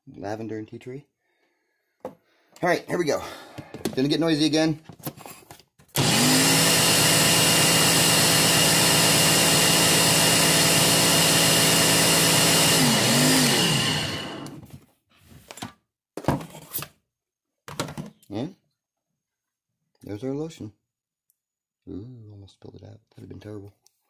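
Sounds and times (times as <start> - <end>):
blender running: 6.0 - 14.6.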